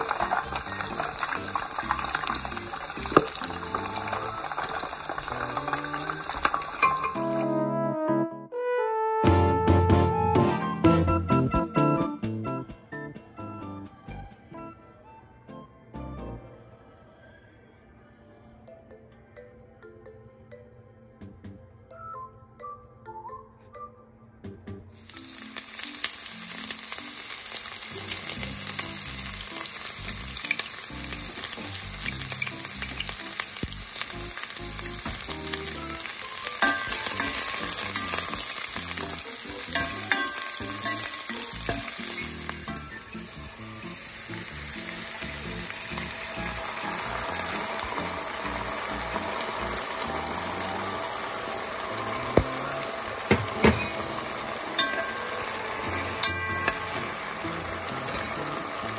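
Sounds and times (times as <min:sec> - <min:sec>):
food sizzling in hot oil: 0:00.0 - 0:07.6, 0:24.9 - 0:58.9.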